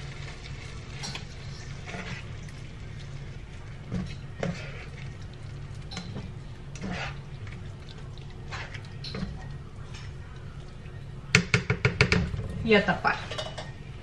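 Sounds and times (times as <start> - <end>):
steady low hum: 0.0 - 14.0
spatula scraping a pan: 1.4 - 2.6, 3.9 - 5.2, 5.9 - 7.3, 8.4 - 9.1.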